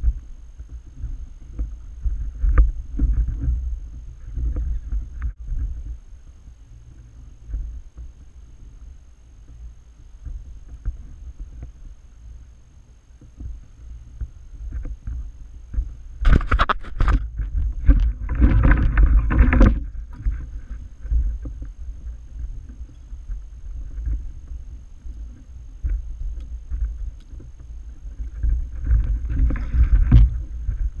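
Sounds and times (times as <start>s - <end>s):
low wind rumble: 0.0s - 31.0s
rustling and splashing water: 0.0s - 31.0s.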